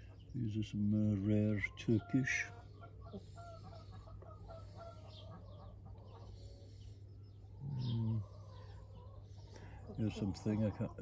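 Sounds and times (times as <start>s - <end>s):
chickens clucking: 0.0s - 11.0s
steady low hum: 0.0s - 11.0s
person murmuring: 7.6s - 8.4s.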